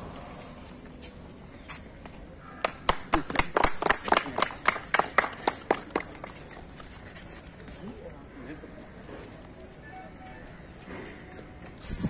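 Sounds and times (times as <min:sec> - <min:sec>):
people clapping: 0:02.6 - 0:07.0.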